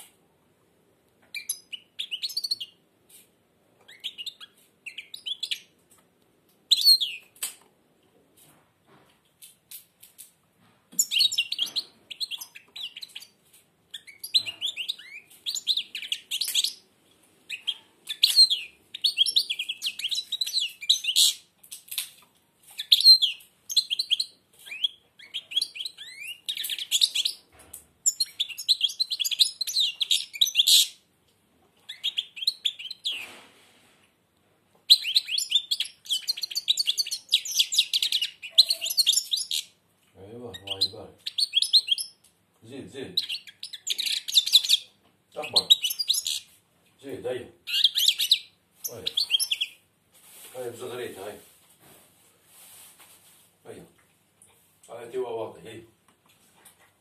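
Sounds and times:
bird twittering trills: 0:34.9 - 0:39.7, 0:47.7 - 0:49.8.

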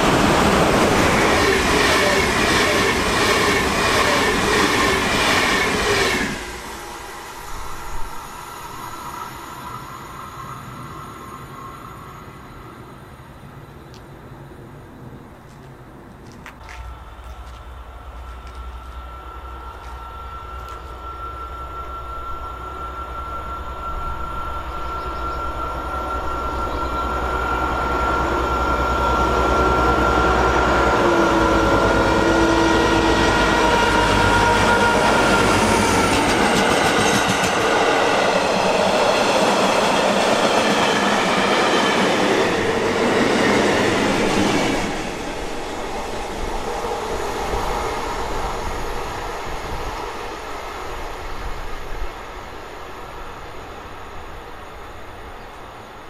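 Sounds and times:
train passing: 0:00.0 - 0:56.0
high whine: 0:16.8 - 0:52.9.

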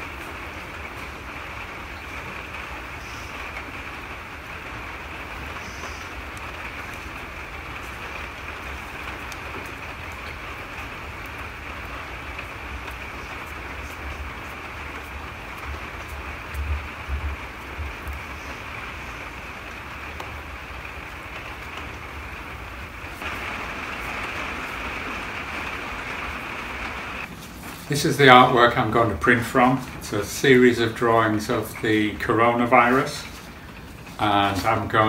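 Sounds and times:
steady hiss: 0:00.0 - 0:35.0.

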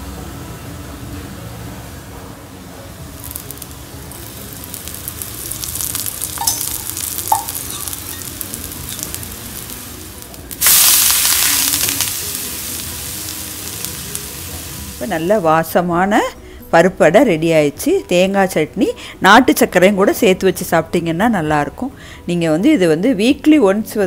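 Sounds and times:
batter sizzling on a hot griddle: 0:03.1 - 0:15.4.

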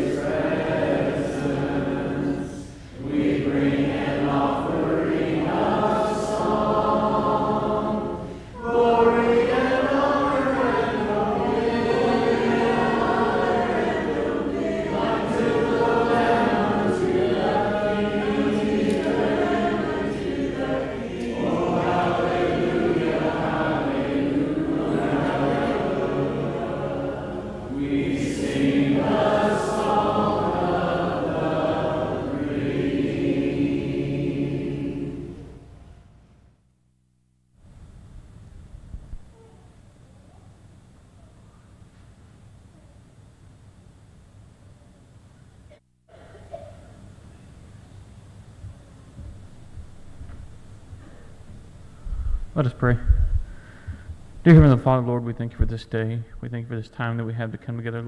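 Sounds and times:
congregation singing a hymn: 0:00.0 - 0:35.8.

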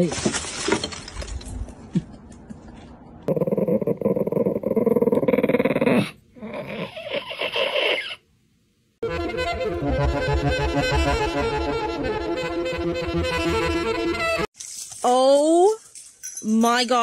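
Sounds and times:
small dog growling: 0:03.3 - 0:08.1
music: 0:09.0 - 0:14.5.

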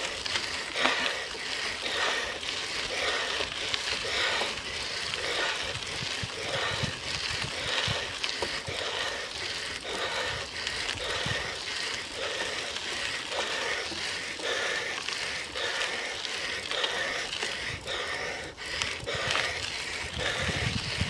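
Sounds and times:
bicycle tyre noise on road: 0:00.0 - 0:21.0
wind rushing over microphone: 0:05.1 - 0:08.1, 0:10.1 - 0:11.6, 0:19.0 - 0:21.0.

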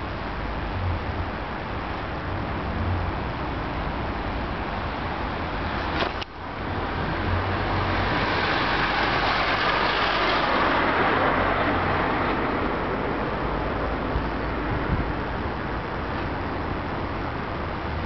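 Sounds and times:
car passing by: 0:04.8 - 0:16.6
steady low rumble: 0:10.5 - 0:18.0.

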